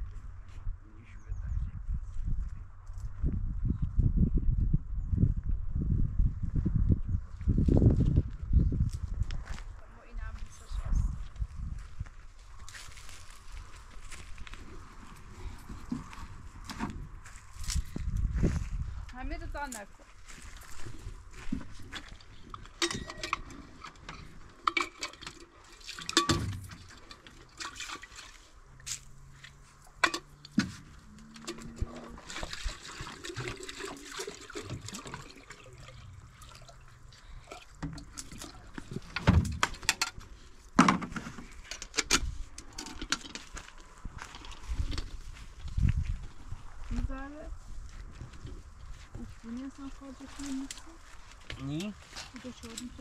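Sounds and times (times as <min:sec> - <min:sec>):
kettle and lid clinking: 0:22.6 - 0:23.6, 0:26.0 - 0:26.6, 0:30.0 - 0:30.3
water pouring into metal kettle: 0:32.4 - 0:38.6.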